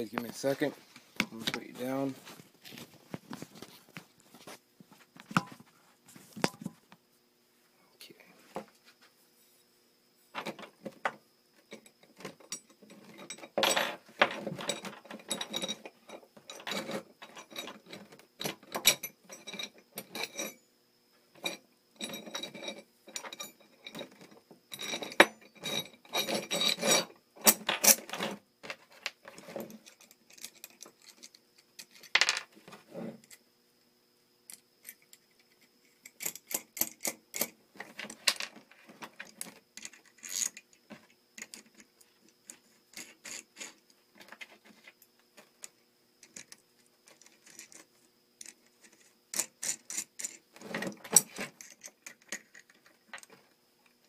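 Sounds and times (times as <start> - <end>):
metal bolts clinking and scraping: 10.3 - 20.6, 21.4 - 33.4, 34.5 - 54.0.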